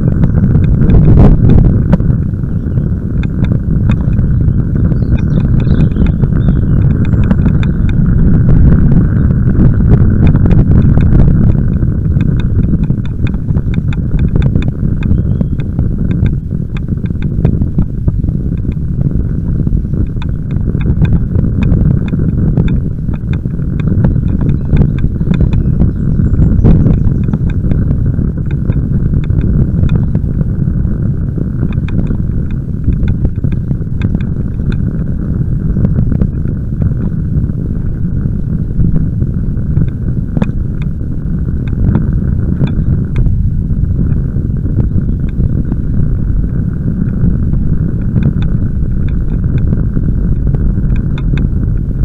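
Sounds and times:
tyres rumbling on tarmac: 0:00.0 - 0:52.0
wind on microphone: 0:00.0 - 0:52.0
sharp clicks: 0:03.2 - 0:08.7, 0:10.2 - 0:17.9, 0:18.5 - 0:18.9, 0:20.0 - 0:30.3, 0:31.6 - 0:34.9, 0:41.6 - 0:52.0.

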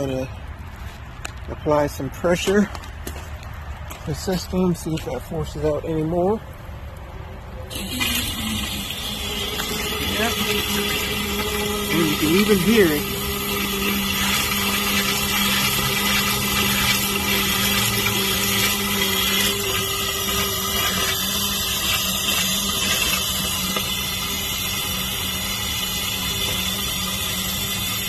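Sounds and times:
air and water sputtering from drains: 0:00.0 - 0:28.0
water pump humming: 0:07.4 - 0:28.0.

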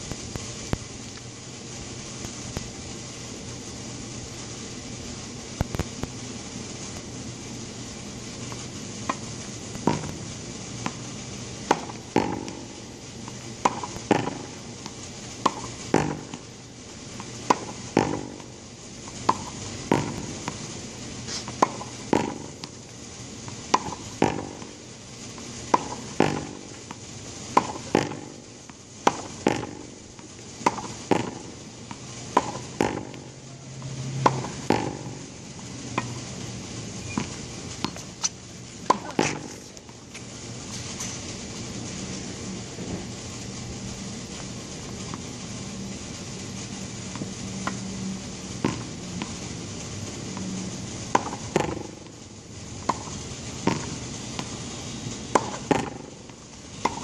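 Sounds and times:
ball bouncing on concrete: 0:08.5 - 0:10.2, 0:10.8 - 0:16.5, 0:17.2 - 0:18.5, 0:19.2 - 0:20.6, 0:21.4 - 0:22.8, 0:23.5 - 0:24.7, 0:25.4 - 0:35.2, 0:37.0 - 0:40.3, 0:48.6 - 0:49.4, 0:51.1 - 0:52.1, 0:52.8 - 0:54.5, 0:55.4 - 0:56.1
racket hitting tennis ball: 0:08.5 - 0:10.2, 0:10.8 - 0:35.3, 0:37.1 - 0:41.2, 0:48.6 - 0:49.4, 0:51.1 - 0:52.1, 0:52.8 - 0:54.6, 0:55.2 - 0:57.0.

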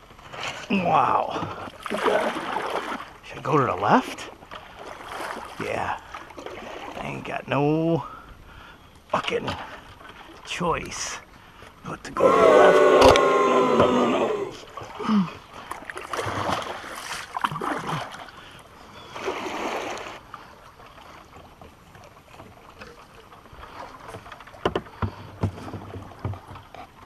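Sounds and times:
water swishing around kayak hull: 0:00.0 - 0:27.0
paddle knocking against wood: 0:24.1 - 0:26.9.

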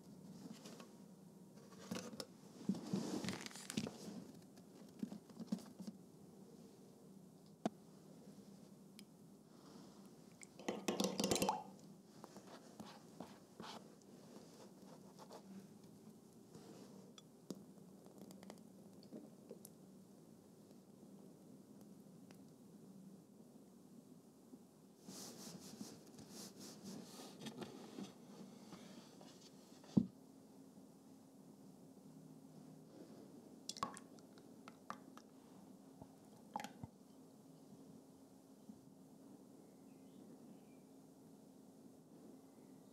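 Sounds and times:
liquid stirring in glass jug: 0:10.5 - 0:11.7.

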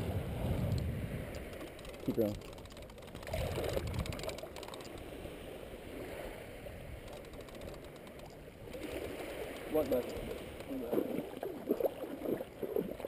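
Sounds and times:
water sloshing around wading legs: 0:07.0 - 0:13.0.

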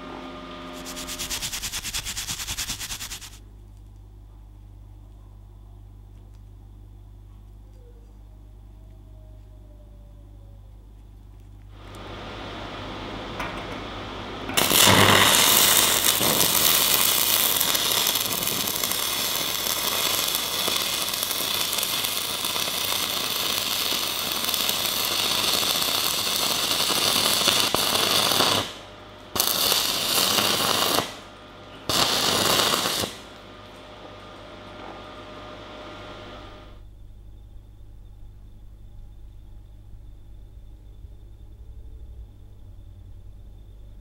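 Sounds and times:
cooling fan humming: 0:00.0 - 0:44.0
welding arc crackling: 0:00.8 - 0:03.4, 0:14.6 - 0:33.4.

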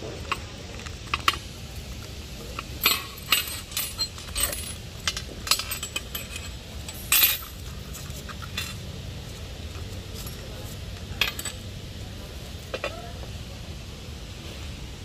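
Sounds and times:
small metal parts clinking: 0:00.2 - 0:11.8.

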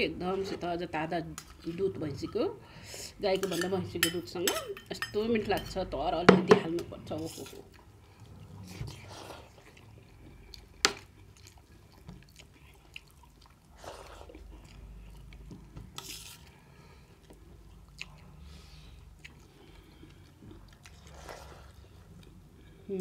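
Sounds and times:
chewing: 0:07.6 - 0:22.8.

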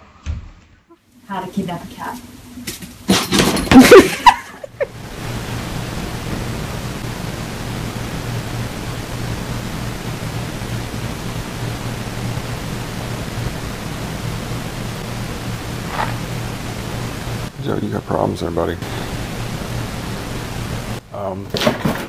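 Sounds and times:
low hum: 0:03.6 - 0:21.1
steady hiss: 0:04.0 - 0:21.5.

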